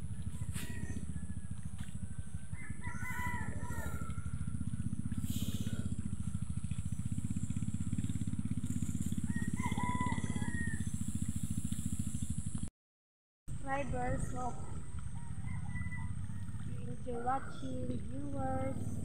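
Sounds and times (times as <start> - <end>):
rooster crowing: 0.0 - 4.8, 9.1 - 11.0, 14.8 - 16.8
steady low rumble: 3.4 - 12.6.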